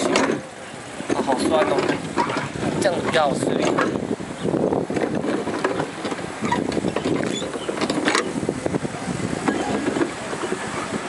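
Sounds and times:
oars knocking in oarlocks: 0.0 - 4.0, 4.8 - 8.5
oars splashing in water: 0.0 - 11.0
rowboat rumbling: 0.0 - 11.0.

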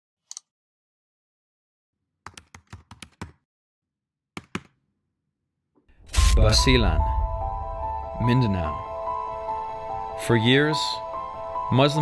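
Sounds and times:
keyboard typing: 2.2 - 3.4.

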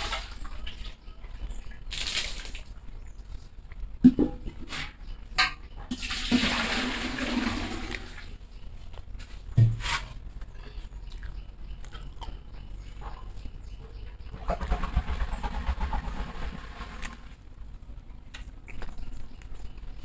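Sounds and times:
chewing: 2.7 - 3.9, 10.4 - 14.2, 18.0 - 20.0.

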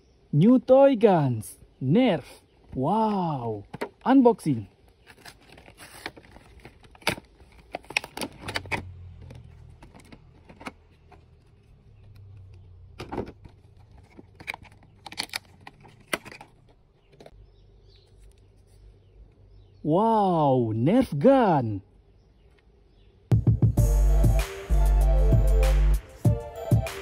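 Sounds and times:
plastic packaging crackling: 4.8 - 12.6.

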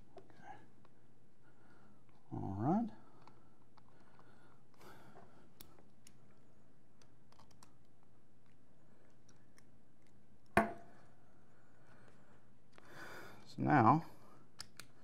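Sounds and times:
small parts clicking: 6.9 - 10.2, 14.5 - 15.0.

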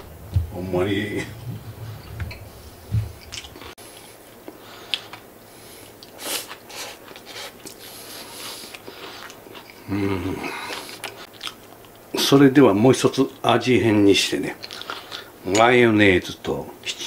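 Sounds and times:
person chewing crunchy food: 3.2 - 5.3, 6.0 - 9.9, 10.5 - 12.0.

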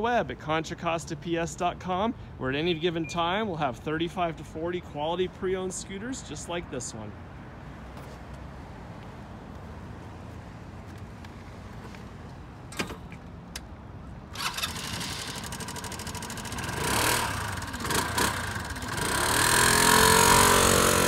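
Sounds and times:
scooter engine starting and revving: 14.3 - 21.0.

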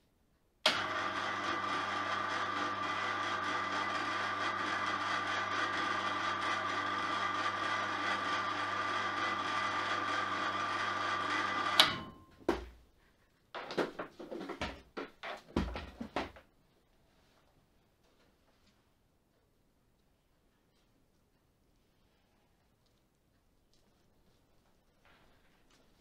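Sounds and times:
electric hoist motor whining: 0.7 - 12.2
switch click: 11.8 - 12.2.

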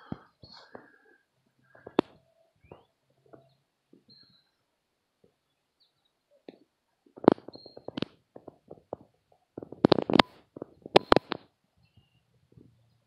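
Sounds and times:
faint high bird chirps: 2.2 - 4.7, 5.4 - 6.4, 7.4 - 8.0, 11.8 - 13.0.

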